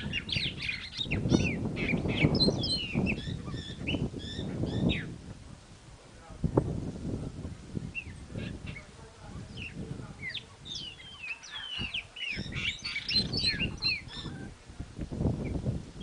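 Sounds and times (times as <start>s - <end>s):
small birds chirping: 0.0s - 5.2s, 7.8s - 14.6s.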